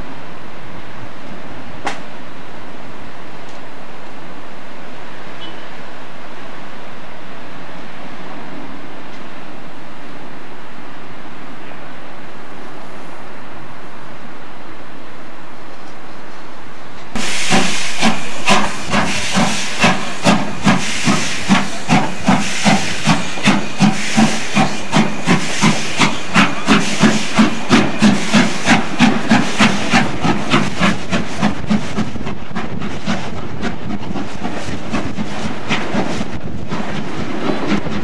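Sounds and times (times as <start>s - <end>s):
loud steam hiss: 17.2s - 38.0s
steam locomotive chuffing: 17.2s - 38.0s.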